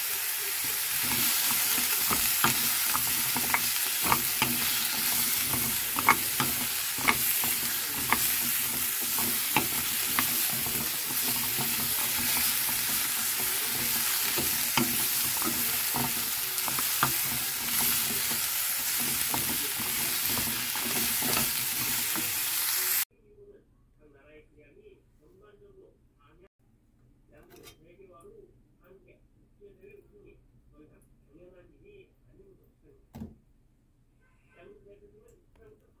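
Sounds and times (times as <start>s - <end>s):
vegetables sizzling in oil: 0.0s - 23.1s
utensil clicking against pan: 0.9s - 22.4s.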